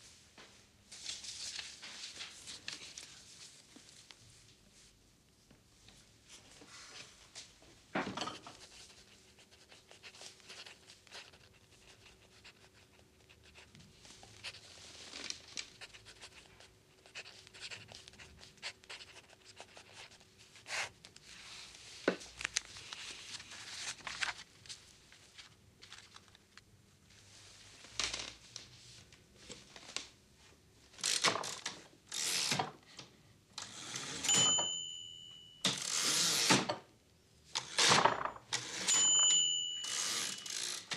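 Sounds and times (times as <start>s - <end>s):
pen scratching on paper: 8.6s - 13.8s, 15.7s - 20.9s.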